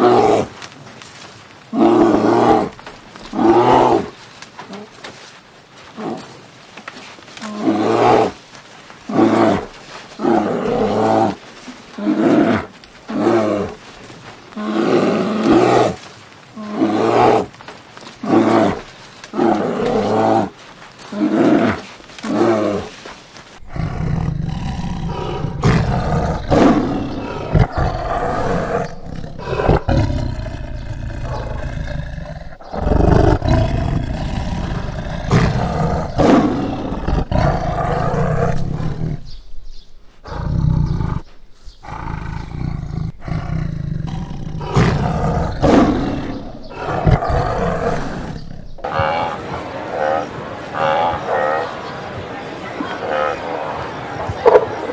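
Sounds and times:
large animal roaring: 0:23.6 - 0:39.3, 0:40.2 - 0:49.4
deep growling rumble: 0:40.5 - 0:48.9.

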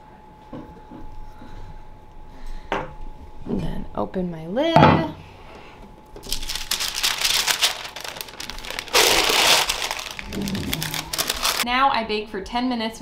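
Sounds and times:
parchment paper crinkling: 0:06.2 - 0:11.6.

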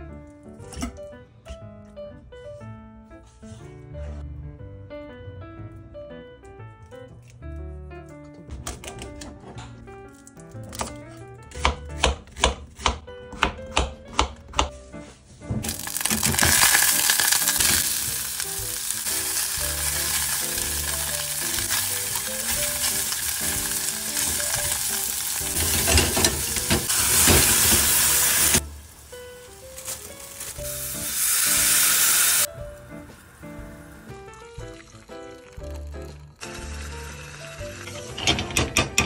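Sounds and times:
vegetables sizzling in pan: 0:15.7 - 0:32.5
spatula stirring: 0:15.9 - 0:28.6.

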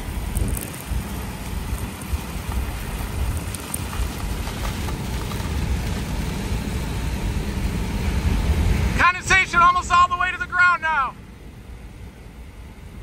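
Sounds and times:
tyre hiss on wet road: 0:00.0 - 0:09.0
vehicle road rumble: 0:00.0 - 0:13.0.

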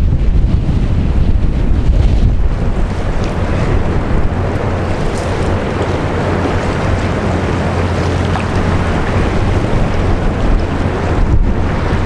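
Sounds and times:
ship engine low drone: 0:00.0 - 0:12.0
wind buffeting microphone: 0:00.0 - 0:12.0
water washing: 0:01.5 - 0:12.0.

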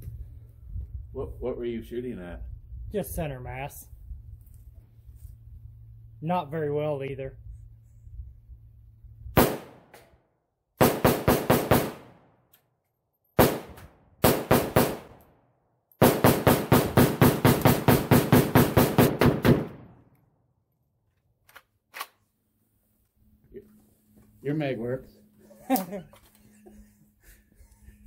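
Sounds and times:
rifle shots with echo: 0:09.4 - 0:10.0, 0:10.8 - 0:12.4, 0:13.4 - 0:15.2, 0:16.0 - 0:20.1.

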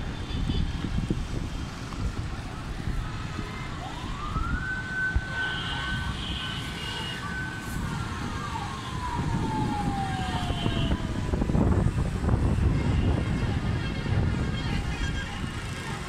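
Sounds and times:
traffic rumble: 0:00.0 - 0:16.0
wind: 0:00.0 - 0:16.0
siren rising and falling: 0:01.9 - 0:12.0.

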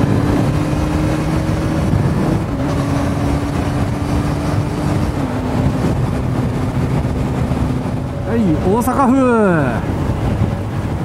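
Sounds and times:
motorcycle engine running: 0:00.0 - 0:08.3
wind and road noise: 0:00.0 - 0:11.0.

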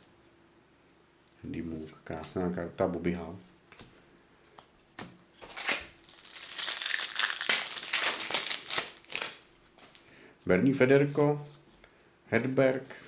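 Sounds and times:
card pack wrapper crinkling: 0:05.4 - 0:10.0.

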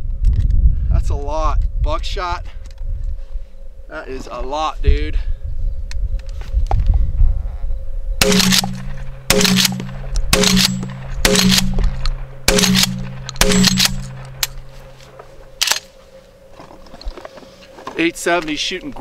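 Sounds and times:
sharp click: 0:08.2 - 0:14.6
shotgun shots: 0:08.2 - 0:15.0
ringing tone: 0:08.2 - 0:17.6.

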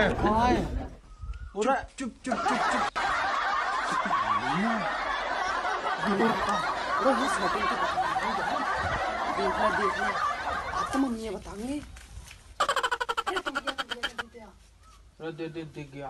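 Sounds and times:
people laughing: 0:00.0 - 0:01.0, 0:02.2 - 0:11.4, 0:12.6 - 0:14.2.

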